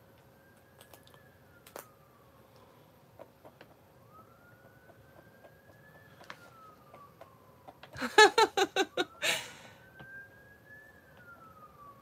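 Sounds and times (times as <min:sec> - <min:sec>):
faint siren: 0:00.0 - 0:12.0
woman giggling: 0:08.0 - 0:09.6
breathy exhale: 0:09.2 - 0:09.8.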